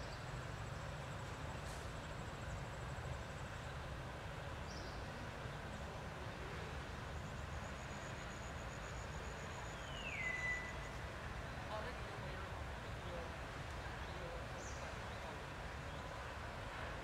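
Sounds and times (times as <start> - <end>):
faint high whine: 5.9 - 11.3.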